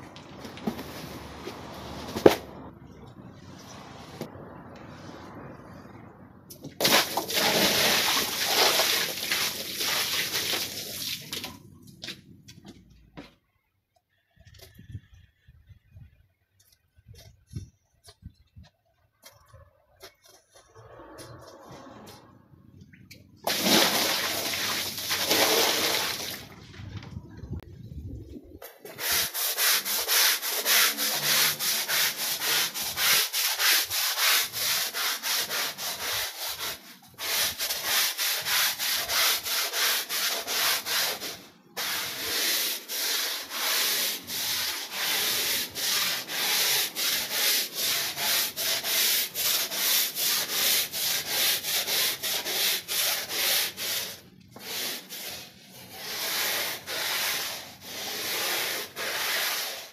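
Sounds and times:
brush scrubbing wet rug: 6.8s - 11.6s, 23.5s - 26.5s, 28.6s - 59.9s.

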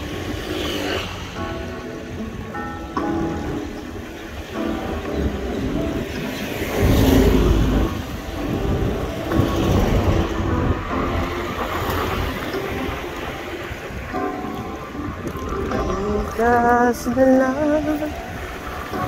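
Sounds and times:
traffic and road rumble: 0.0s - 19.0s
van passing close by: 4.0s - 14.9s.

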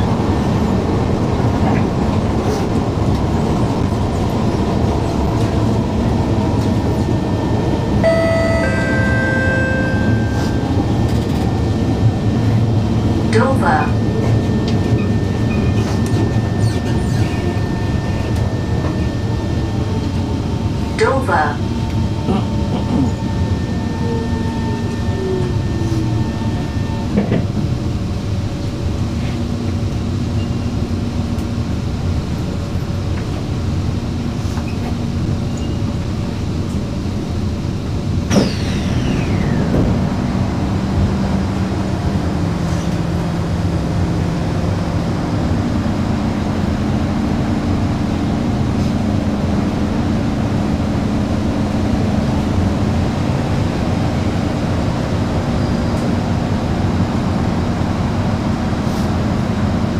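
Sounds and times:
standing train hum: 0.0s - 59.9s
train running rumble: 0.0s - 59.9s
traction motor whine: 6.6s - 21.0s, 21.6s - 27.4s, 38.1s - 43.4s
sharp sound with falling whistle: 38.4s - 39.7s.

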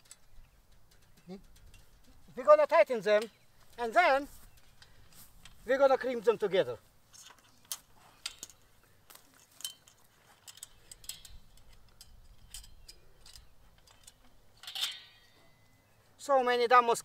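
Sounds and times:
fence wire stretcher clicking: 0.0s - 5.7s, 7.1s - 15.6s
short metallic ring: 14.0s - 15.7s.

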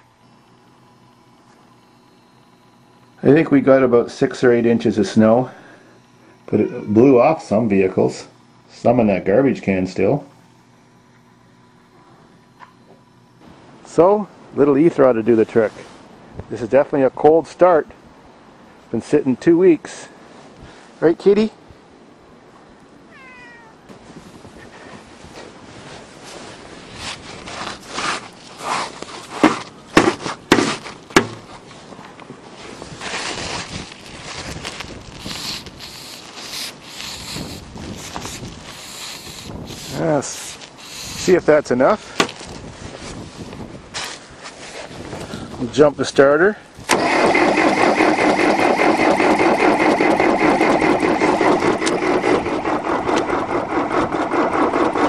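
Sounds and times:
footsteps crunching in snow: 23.9s - 45.7s
sharp knocks: 29.4s - 31.5s
starter motor cranking diesel engine: 34.6s - 40.0s, 46.9s - 55.0s.

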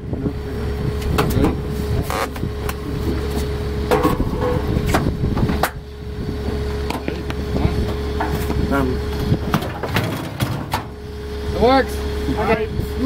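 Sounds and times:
diesel engine idling: 0.0s - 13.0s
washing machine knocking against metal: 3.9s - 5.5s.

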